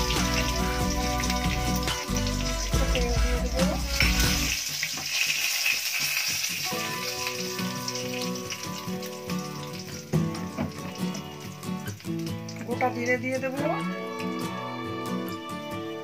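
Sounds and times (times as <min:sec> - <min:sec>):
background music: 0:00.0 - 0:04.8, 0:06.5 - 0:16.0
spices sizzling in hot oil: 0:00.0 - 0:14.3.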